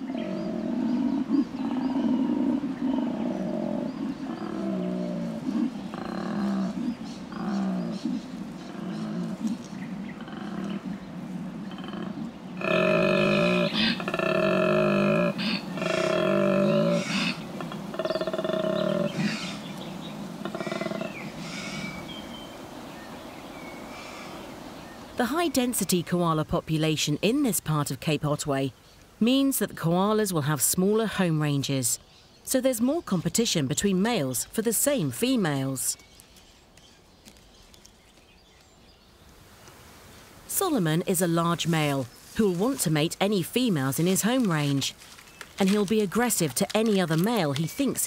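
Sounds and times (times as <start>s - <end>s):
koala bellowing: 11.7s - 22.3s.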